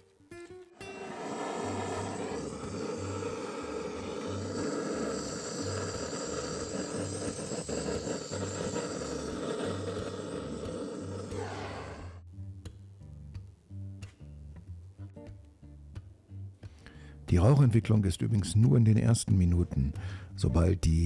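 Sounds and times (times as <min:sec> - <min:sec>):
gas torch hissing: 0:00.8 - 0:12.2.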